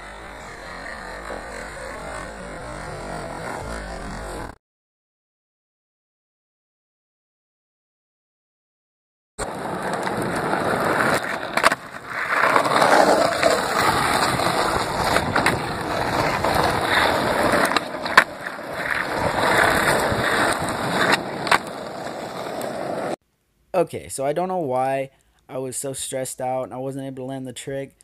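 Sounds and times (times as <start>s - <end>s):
skateboard wheels rolling on asphalt: 0.0s - 4.6s, 9.4s - 23.2s
skateboard clacking on ground: 9.4s - 23.2s.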